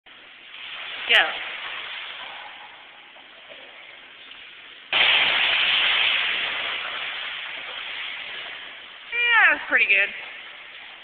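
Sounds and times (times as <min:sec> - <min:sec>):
water churning: 0:00.1 - 0:11.0
loud splash into pool: 0:04.9 - 0:09.3.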